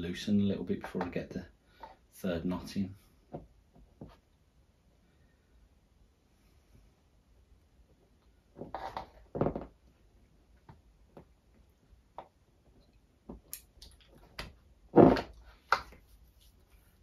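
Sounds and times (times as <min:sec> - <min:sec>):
fabric rustling: 0:15.0 - 0:17.0.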